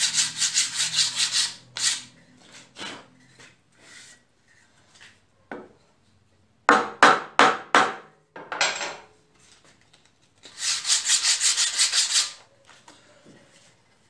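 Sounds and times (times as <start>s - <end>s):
scrape on wood: 0.0s - 5.2s.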